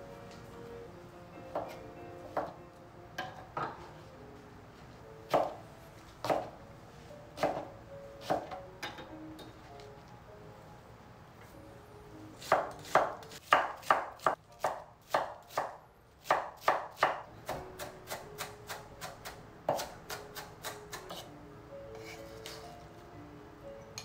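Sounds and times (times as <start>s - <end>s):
knife chopping on wooden board: 6.2s - 6.5s, 7.4s - 7.6s, 12.4s - 21.3s.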